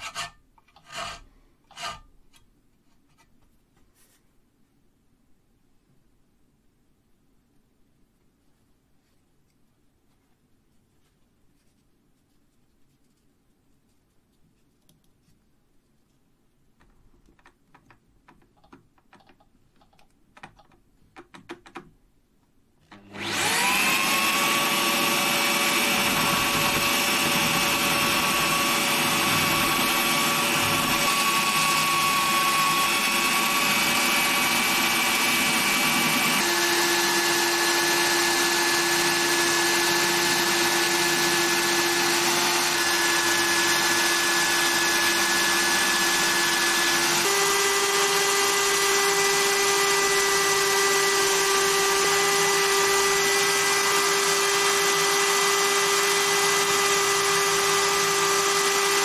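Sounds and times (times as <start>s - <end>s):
electric drill whining: 22.9s - 59.0s.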